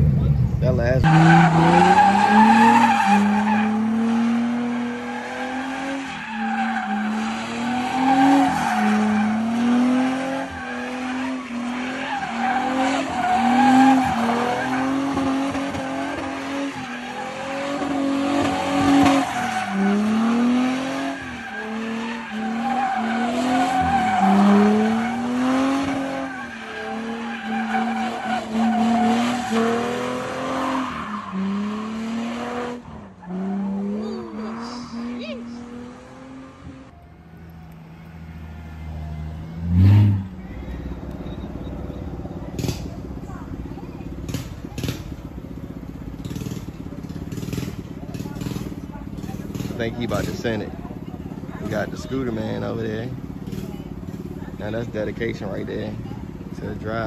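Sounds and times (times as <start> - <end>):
car engine revving: 0.0 - 57.0
tyres screeching: 1.0 - 45.3.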